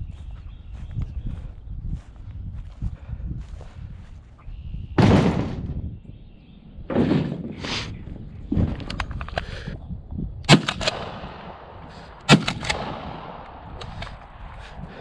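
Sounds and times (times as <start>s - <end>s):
shotgun shot with echo: 5.0s - 5.8s, 10.5s - 14.1s.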